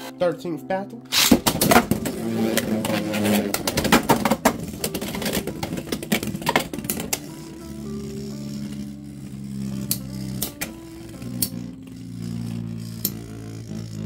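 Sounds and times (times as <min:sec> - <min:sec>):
launcher rip: 0:01.1 - 0:02.0.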